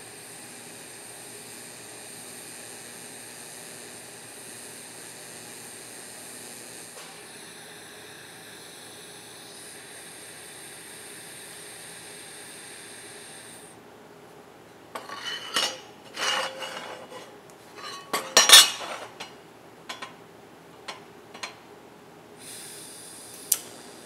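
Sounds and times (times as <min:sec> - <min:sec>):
welding arc hissing: 0:00.0 - 0:13.8, 0:22.4 - 0:24.0
steel bracket clanking on table: 0:15.0 - 0:19.3.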